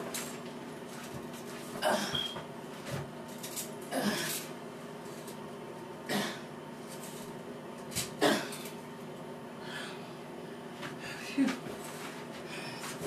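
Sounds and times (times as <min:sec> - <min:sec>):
faint steady hum: 0:00.0 - 0:13.0
woman coughing: 0:08.2 - 0:08.6.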